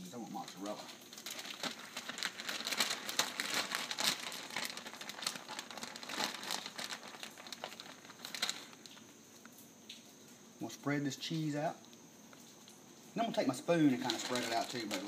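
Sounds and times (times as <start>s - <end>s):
plastic bag crinkling: 0.1s - 9.1s, 13.3s - 15.0s.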